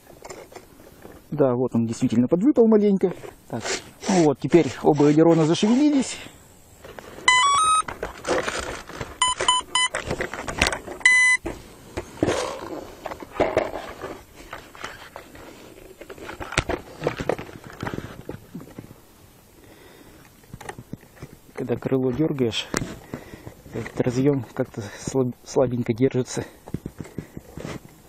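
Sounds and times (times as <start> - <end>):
rustling of foam model: 6.8 - 19.1, 26.3 - 28.0
short electronic beeps: 7.3 - 7.9, 9.2 - 10.0, 11.0 - 11.4.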